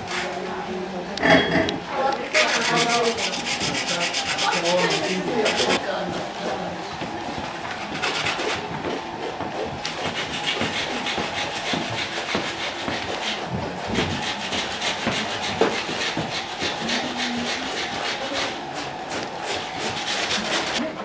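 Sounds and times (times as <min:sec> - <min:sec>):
drawing stick scribbling on rough paint: 0:02.3 - 0:05.8, 0:07.8 - 0:20.8.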